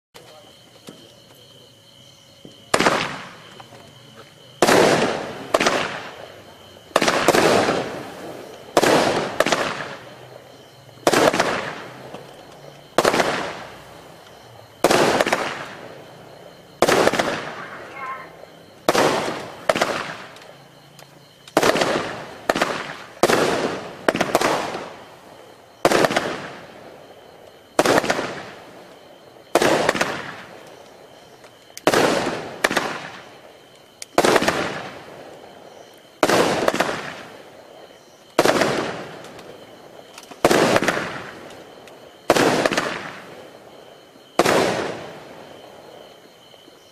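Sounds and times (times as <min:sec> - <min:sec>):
firework cake bangs: 0:02.5 - 0:03.6, 0:04.6 - 0:06.3, 0:06.9 - 0:10.2, 0:11.0 - 0:12.3, 0:12.9 - 0:13.8, 0:14.8 - 0:15.9, 0:16.8 - 0:20.4, 0:21.5 - 0:25.1, 0:25.8 - 0:26.8, 0:27.7 - 0:28.6, 0:29.5 - 0:30.6, 0:31.8 - 0:33.5, 0:34.1 - 0:35.1, 0:36.2 - 0:37.4, 0:38.4 - 0:39.6, 0:40.4 - 0:41.4, 0:42.2 - 0:43.3, 0:44.4 - 0:45.3.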